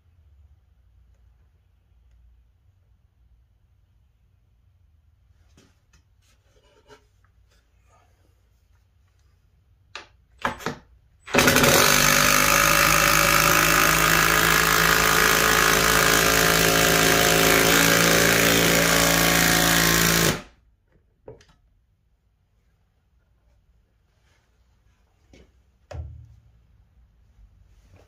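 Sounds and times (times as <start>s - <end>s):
impact driver hammering: 10.4s - 20.5s.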